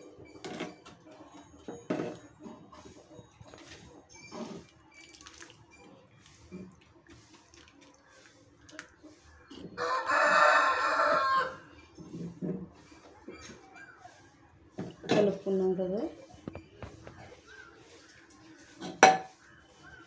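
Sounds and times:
ladle scraping a pan: 1.8s - 4.8s.

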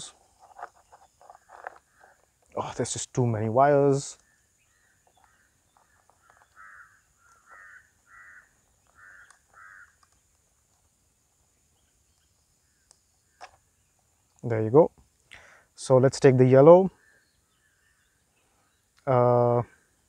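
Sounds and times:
bird calling faintly: 0.0s - 2.6s, 4.1s - 14.6s.

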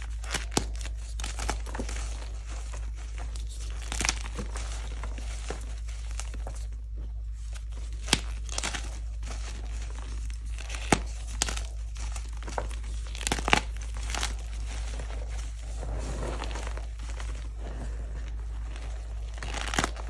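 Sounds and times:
hands crushing chalk: 0.0s - 20.0s
chalk pieces snapping: 0.1s - 2.2s, 7.5s - 9.6s, 10.2s - 14.5s.

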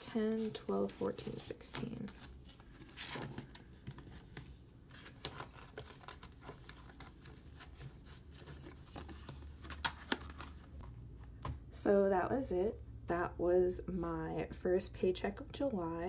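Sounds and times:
plastic folder crinkling: 0.3s - 10.9s.

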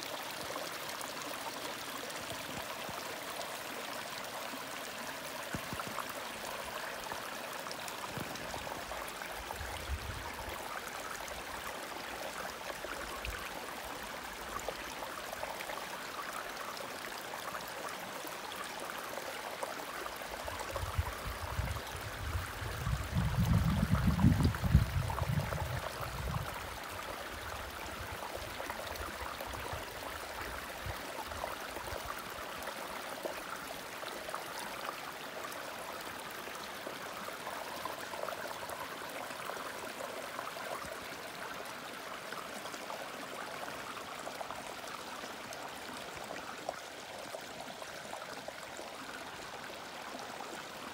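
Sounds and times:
creek trickling over stones: 0.0s - 50.9s.

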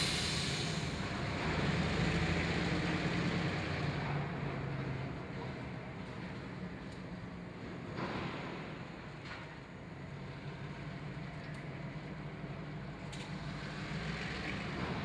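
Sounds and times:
diesel locomotive engine droning: 0.0s - 15.0s.

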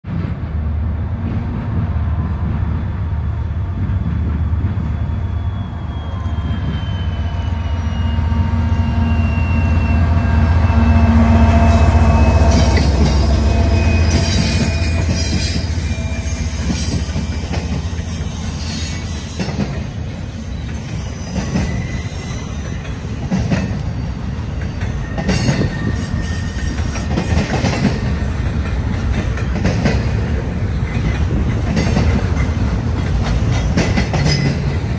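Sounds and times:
diesel locomotive engine rumble: 0.0s - 34.9s
squeal sliding down in pitch: 5.2s - 19.7s, 20.3s - 22.9s
train wheels clicking on rail joints: 11.2s - 34.9s.

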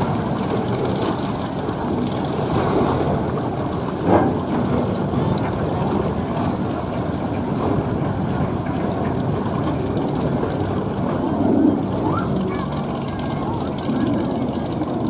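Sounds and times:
boat engine low rumble: 0.0s - 15.0s.

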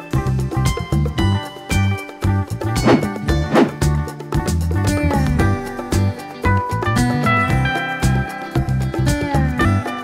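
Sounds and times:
short whoosh: 2.8s - 3.9s.

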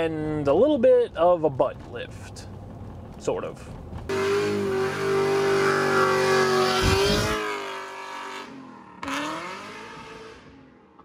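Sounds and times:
tires spinning and squealing: 4.1s - 10.5s
car engine revving high: 4.1s - 10.9s.

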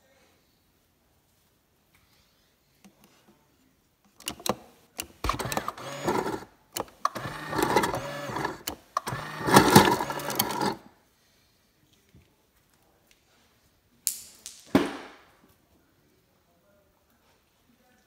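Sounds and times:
ice dispenser motor hum: 5.2s - 10.9s
ice cubes clattering: 7.4s - 10.8s.

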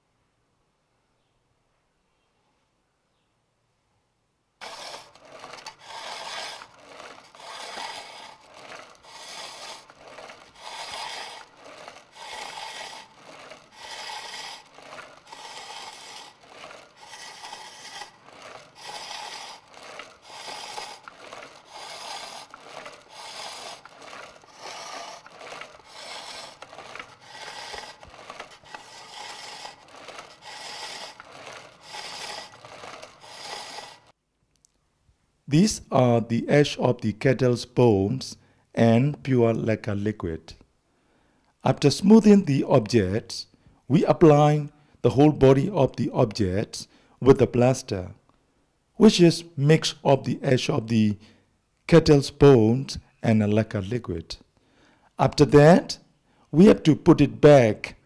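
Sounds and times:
knife scraping bamboo: 4.6s - 34.1s.

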